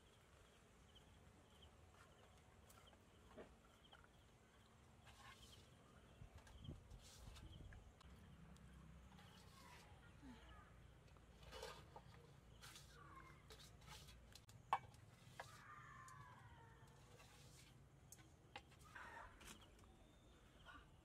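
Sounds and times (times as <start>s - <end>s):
faint bird call: 15.4s - 17.2s, 18.8s - 21.0s.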